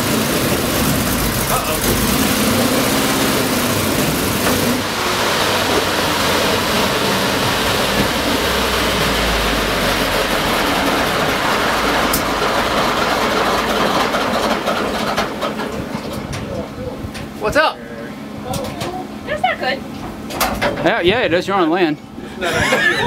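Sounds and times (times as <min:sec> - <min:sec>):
low rumble: 0:00.0 - 0:15.2
tracked vehicle engine running: 0:00.0 - 0:21.4.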